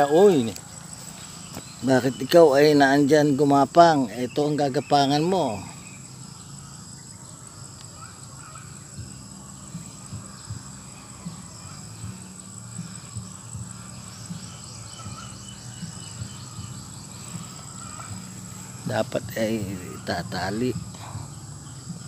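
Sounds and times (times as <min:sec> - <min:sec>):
high-pitched insect chorus: 0:00.0 - 0:22.0
fast chirping trill: 0:07.9 - 0:22.0.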